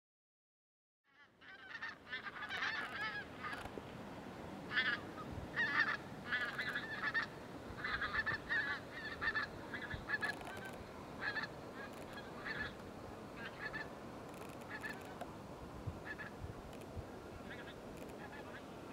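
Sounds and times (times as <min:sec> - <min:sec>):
flock of birds calling: 0:01.2 - 0:03.7, 0:04.7 - 0:15.2, 0:16.0 - 0:16.4, 0:17.3 - 0:18.9
steady background hiss: 0:01.2 - 0:18.9.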